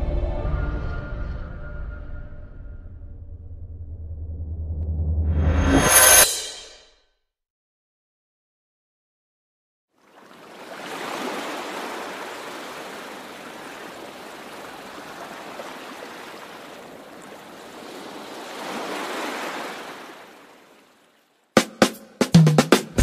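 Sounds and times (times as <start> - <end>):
ocean surf washing: 10.1 - 21.2.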